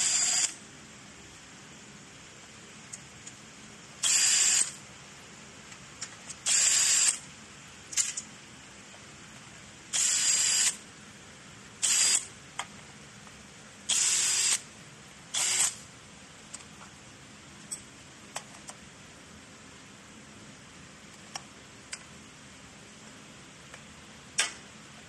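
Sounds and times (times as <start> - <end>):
cordless drill whirring: 0.0 - 0.6, 4.0 - 4.7, 6.5 - 7.2, 10.0 - 10.8, 11.8 - 12.3, 13.9 - 14.6, 15.4 - 15.8.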